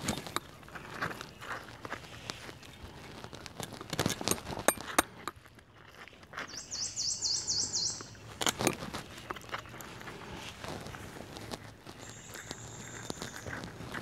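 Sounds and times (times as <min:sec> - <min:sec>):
rustling: 0:00.0 - 0:06.6, 0:08.1 - 0:14.0
bird calling high notes: 0:06.5 - 0:08.2.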